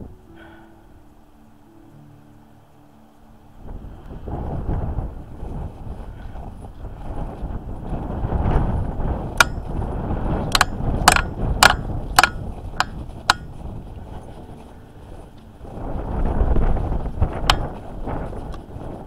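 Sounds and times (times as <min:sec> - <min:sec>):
wind on microphone: 0:00.0 - 0:01.0, 0:03.5 - 0:19.0
footsteps on packed snow: 0:04.8 - 0:19.0
pole tips clicking on icy snow: 0:09.3 - 0:13.7, 0:17.2 - 0:18.6.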